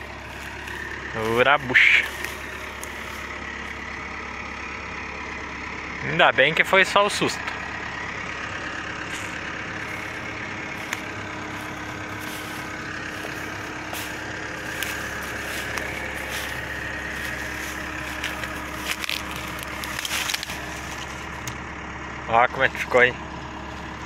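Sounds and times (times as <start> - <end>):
twigs crackling underfoot: 0.0 - 5.0, 8.3 - 21.6
diesel engine idling: 0.0 - 24.0.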